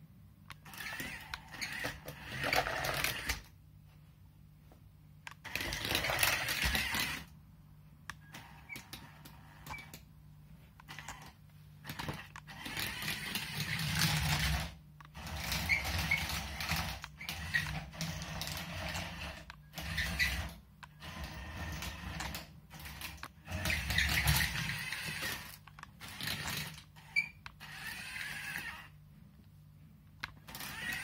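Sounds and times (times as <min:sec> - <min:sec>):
electric motors whirring: 0:00.6 - 0:03.5, 0:05.4 - 0:07.3, 0:10.8 - 0:29.0, 0:30.2 - 0:31.0.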